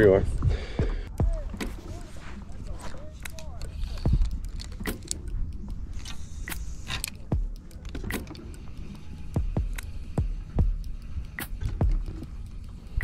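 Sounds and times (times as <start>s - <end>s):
reel clicks and rattles: 1.1s - 13.0s
fishing reel cranking: 2.9s - 13.0s
low thumps: 9.4s - 12.3s.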